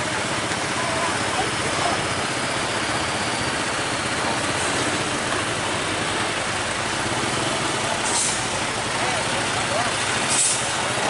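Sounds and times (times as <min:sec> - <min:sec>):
traffic noise: 0:00.0 - 0:11.0
truck diesel engine running: 0:00.0 - 0:11.0.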